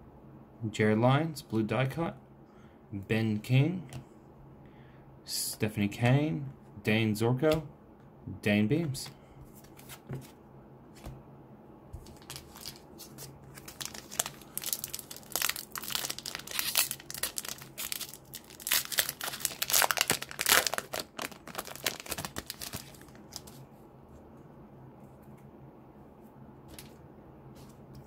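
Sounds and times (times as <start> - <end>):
wrapper crinkling and tearing: 12.1 - 23.6.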